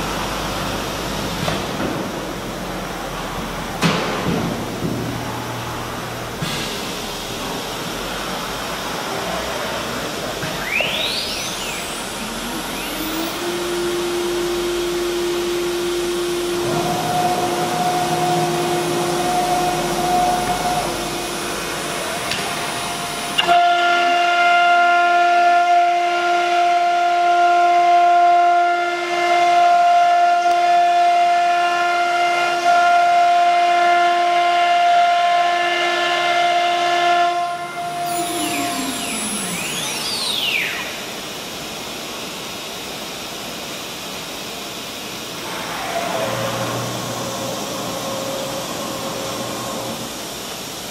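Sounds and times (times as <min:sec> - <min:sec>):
low machine hum: 0:00.0 - 0:33.8, 0:45.2 - 0:50.9
router spindle motor whine: 0:10.5 - 0:25.0, 0:36.2 - 0:41.2, 0:45.4 - 0:50.7.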